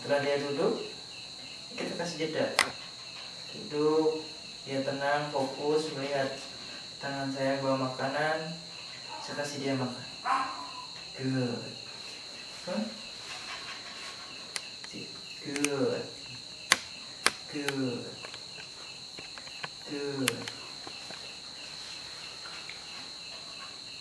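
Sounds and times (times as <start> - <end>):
cricket chirping: 0.0 - 24.0
sharp clicks: 2.6 - 2.8, 14.5 - 21.2.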